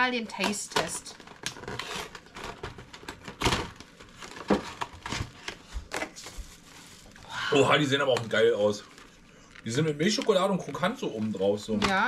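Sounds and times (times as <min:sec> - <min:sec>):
foil liner crinkling: 0:00.3 - 0:12.0
cardboard box being torn open: 0:01.3 - 0:05.4.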